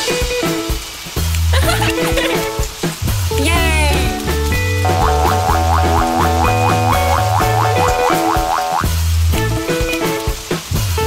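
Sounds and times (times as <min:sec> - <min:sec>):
upbeat background music: 0:03.4 - 0:09.0.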